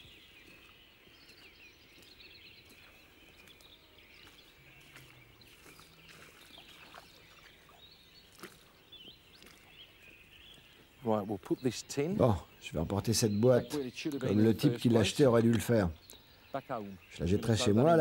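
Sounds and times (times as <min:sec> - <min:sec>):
footsteps on gravel: 0:00.0 - 0:07.6
birds chirping in distance: 0:00.0 - 0:18.0.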